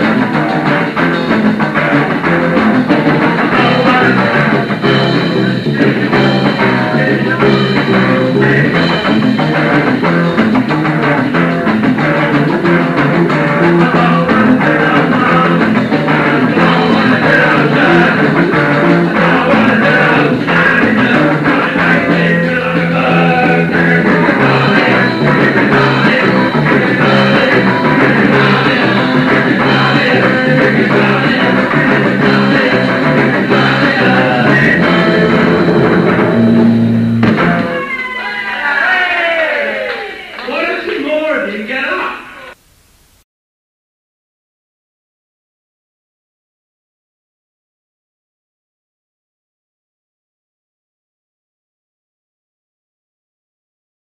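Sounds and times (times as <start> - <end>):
steady drum beat: 0.0 - 37.7
rock band playing live: 0.0 - 39.2
electric guitars: 0.0 - 41.0.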